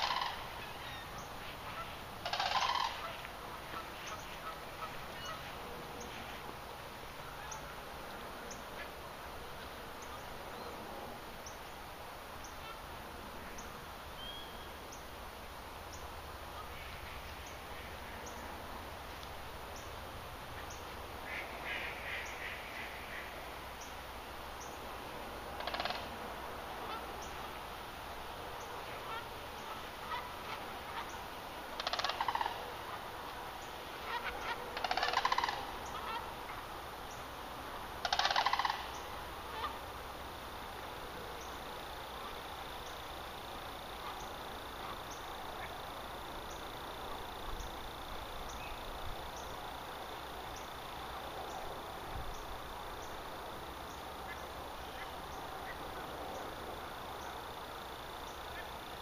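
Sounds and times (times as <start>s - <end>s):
geese honking: 0.0s - 6.5s, 7.2s - 7.9s, 12.5s - 12.9s, 25.6s - 26.1s, 26.7s - 27.6s, 28.8s - 36.7s, 38.0s - 39.9s
outdoor hush: 0.0s - 59.0s.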